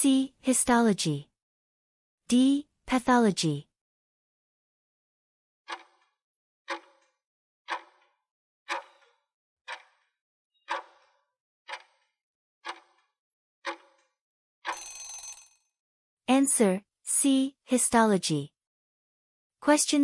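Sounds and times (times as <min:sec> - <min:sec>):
timer ticking: 0:08.7 - 0:09.1, 0:09.7 - 0:10.0, 0:10.7 - 0:11.0, 0:12.7 - 0:12.9.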